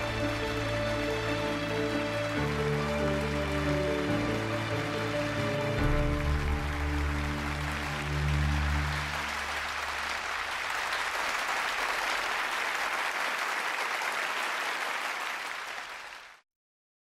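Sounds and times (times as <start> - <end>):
held music chord: 0.0 - 9.8
audience applause: 0.0 - 16.4.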